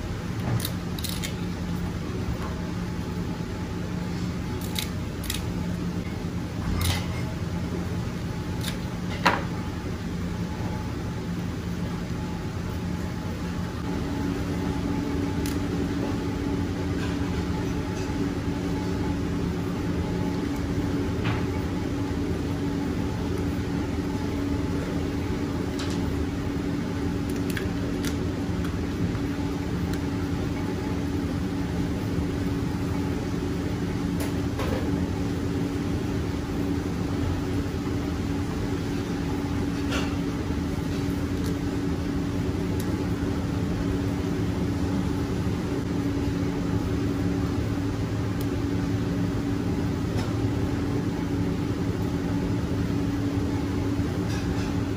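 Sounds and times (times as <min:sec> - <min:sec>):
kitchen machine hum: 0:00.0 - 0:54.9.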